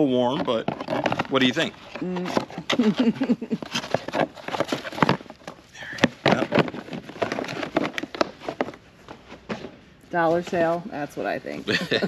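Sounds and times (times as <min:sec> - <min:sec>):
shoes handled in cardboard box: 0:02.4 - 0:09.8.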